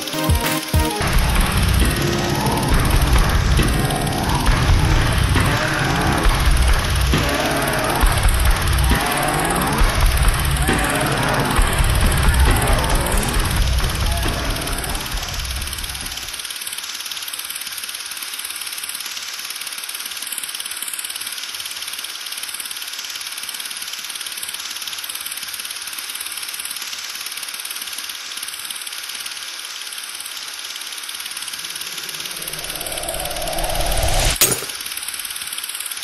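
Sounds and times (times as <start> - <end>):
low rumble: 31.4 - 34.8.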